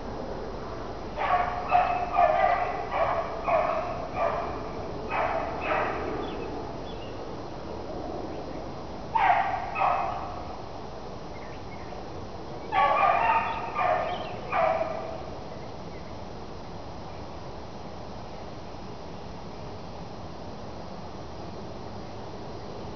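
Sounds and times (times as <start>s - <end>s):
dog baying: 1.2s - 6.0s.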